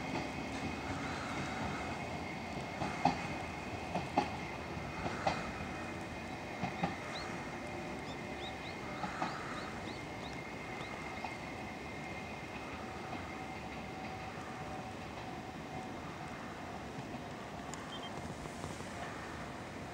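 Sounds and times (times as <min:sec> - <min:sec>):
train wheels clacking over joints: 0:00.0 - 0:19.6.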